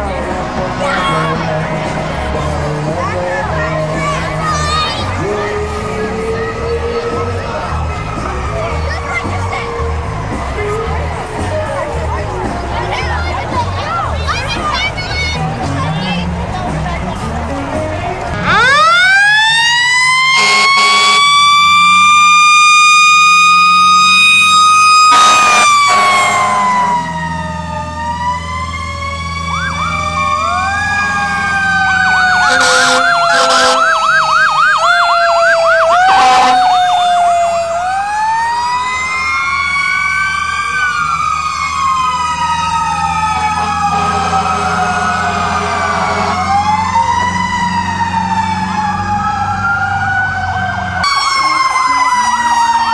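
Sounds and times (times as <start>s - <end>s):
truck engine hum: 0.0s - 52.9s
mechanical siren wailing: 18.4s - 52.9s
siren wailing and yelping: 18.4s - 52.9s
truck horn blasts: 20.3s - 21.4s, 25.1s - 26.9s, 32.4s - 34.0s, 36.1s - 36.7s.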